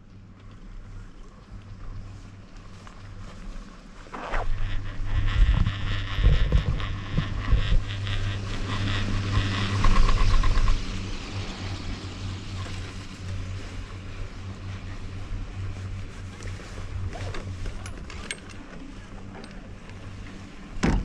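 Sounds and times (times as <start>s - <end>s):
lift cable hum and rumble: 0.0s - 21.0s
wind on microphone: 4.1s - 11.8s.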